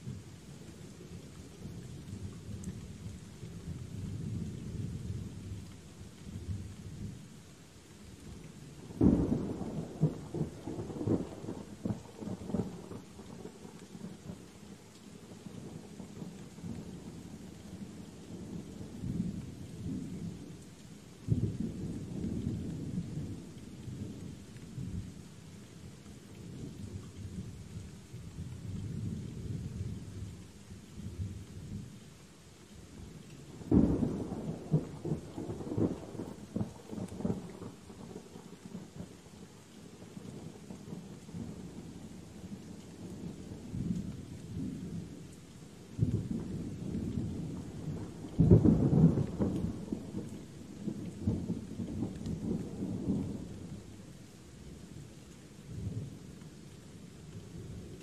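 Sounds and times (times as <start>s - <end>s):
steady rain: 0.0s - 58.0s
thunder crack and rumble: 46.0s - 53.8s.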